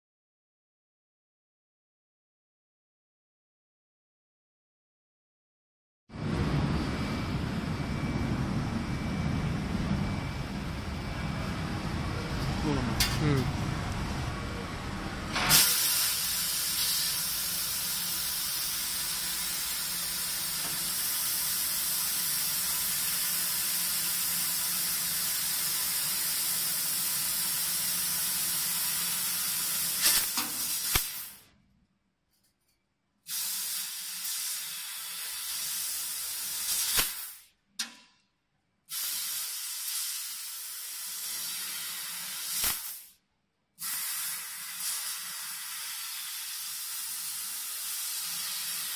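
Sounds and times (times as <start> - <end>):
assist gas hissing from nozzle: 15.5 - 19.3, 33.3 - 34.8, 38.9 - 41.7, 43.8 - 48.9.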